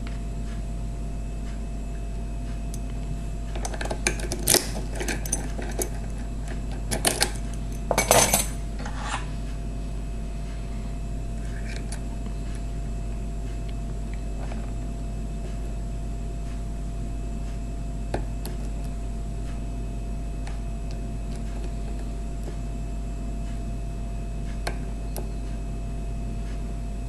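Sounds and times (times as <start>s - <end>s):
steady low hum: 0.0s - 27.0s
metal lock and key clinks: 3.6s - 8.6s.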